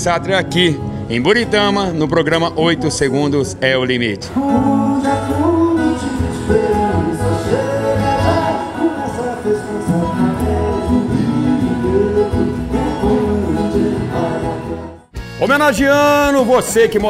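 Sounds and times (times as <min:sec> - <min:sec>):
acoustic guitars: 0:00.0 - 0:15.6
upright bass: 0:00.0 - 0:17.0
man singing: 0:04.2 - 0:15.1
accordion: 0:04.3 - 0:17.0.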